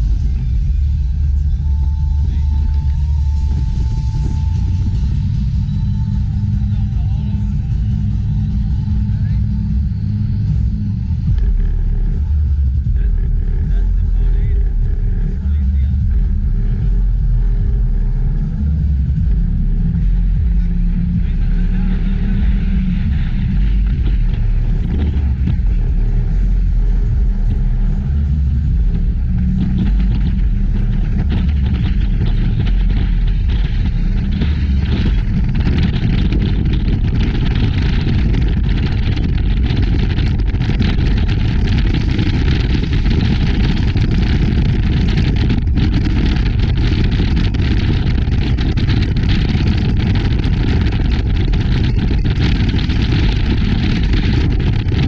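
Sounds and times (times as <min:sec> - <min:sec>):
speedboat engine rumble: 0:00.0 - 0:55.0.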